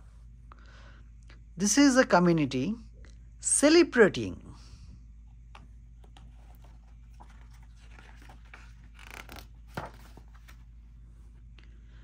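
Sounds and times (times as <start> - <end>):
paper book page turning: 6.0 - 10.8.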